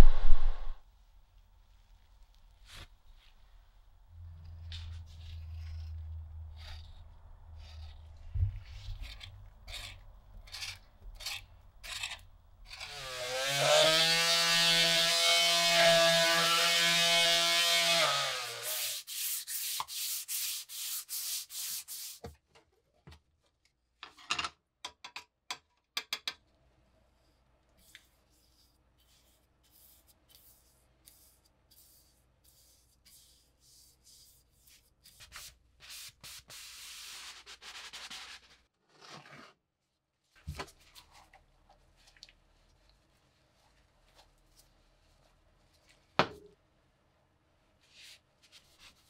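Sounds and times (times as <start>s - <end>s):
sanding block strokes: 18.0s - 22.2s, 28.3s - 38.6s
rubbing strokes on wood: 18.1s - 22.2s, 27.8s - 38.4s.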